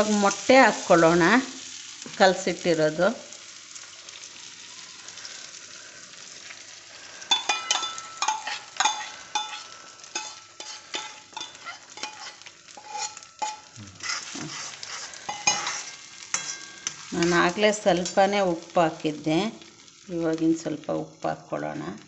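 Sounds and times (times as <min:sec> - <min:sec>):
eggs sizzling in hot oil: 0:00.0 - 0:22.0
steel spoon clinking and scraping: 0:07.3 - 0:17.4.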